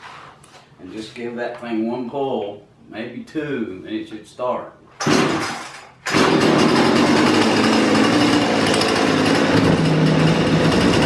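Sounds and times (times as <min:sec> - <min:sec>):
chainsaw idling: 0:06.1 - 0:11.0.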